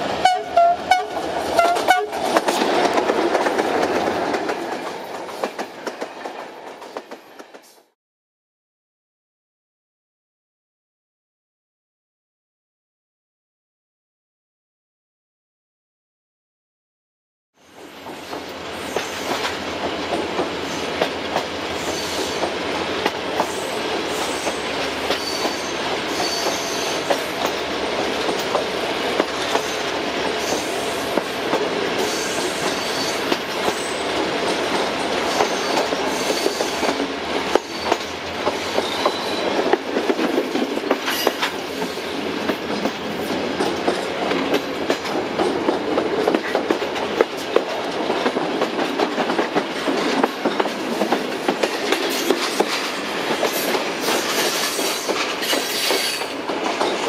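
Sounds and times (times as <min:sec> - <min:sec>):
train rolling on track: 0:00.0 - 0:08.0, 0:17.6 - 0:57.0
wheels clicking over rail joints: 0:00.2 - 0:07.6.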